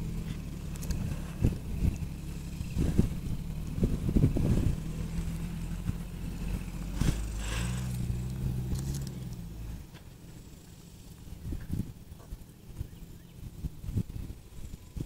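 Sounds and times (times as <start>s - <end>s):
off-road vehicle engine running: 0.0s - 15.0s
low thumps: 0.8s - 9.1s.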